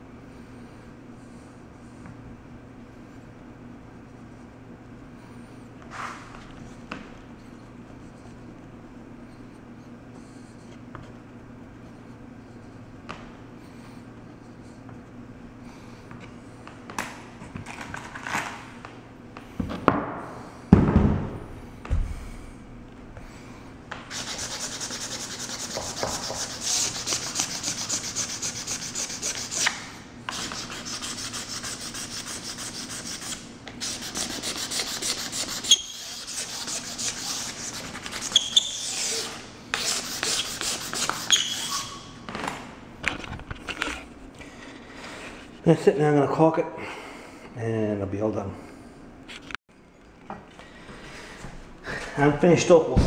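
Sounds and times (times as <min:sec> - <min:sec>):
knocks and dull thumps: 0:19.6 - 0:22.2
sandpaper rubbing on wood: 0:24.1 - 0:42.0.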